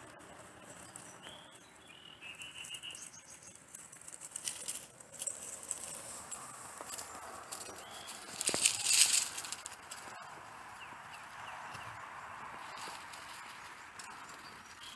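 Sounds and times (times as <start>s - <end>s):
bird calling with a trill: 0.0s - 5.6s, 6.9s - 12.0s
rustling of dry leaves: 0.0s - 14.9s.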